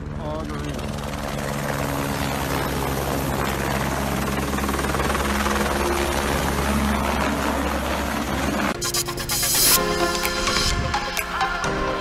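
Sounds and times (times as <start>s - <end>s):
helicopter rotor and engine: 0.0s - 11.2s.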